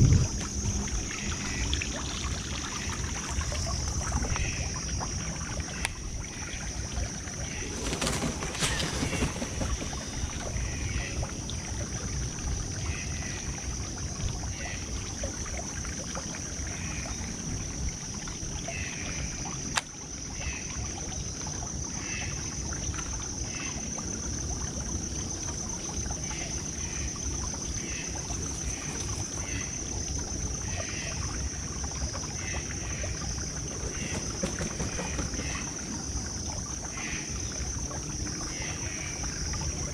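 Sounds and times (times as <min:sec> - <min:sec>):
wind rumbling on microphone: 0:00.0 - 0:14.5.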